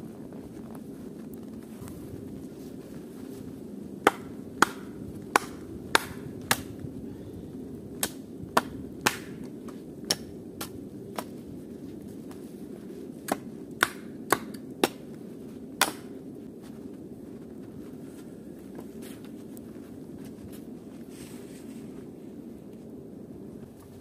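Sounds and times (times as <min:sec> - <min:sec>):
hatchet chopping wooden pole: 0:04.0 - 0:06.7, 0:08.0 - 0:09.5, 0:10.1 - 0:11.3, 0:13.2 - 0:15.0, 0:15.8 - 0:16.1.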